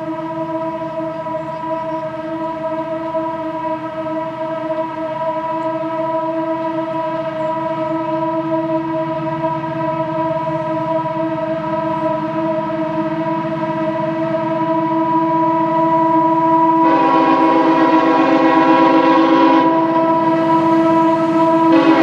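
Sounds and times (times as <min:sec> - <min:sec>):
diesel locomotives droning: 0:00.0 - 0:22.0
locomotive horn: 0:00.0 - 0:22.0.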